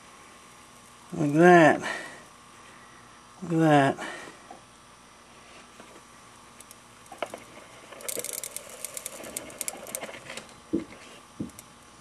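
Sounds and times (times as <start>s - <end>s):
sharp crackling ticks: 8.0s - 10.1s.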